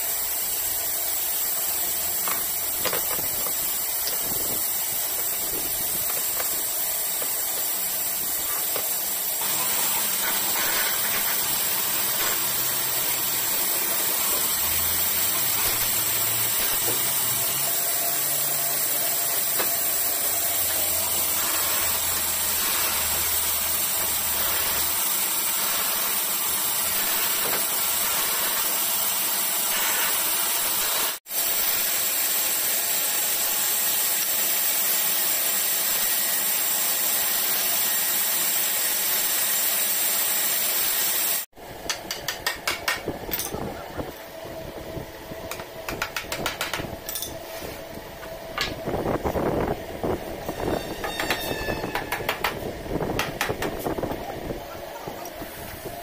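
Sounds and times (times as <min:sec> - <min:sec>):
band saw cutting wood: 0:00.0 - 0:41.5, 0:50.5 - 0:52.6.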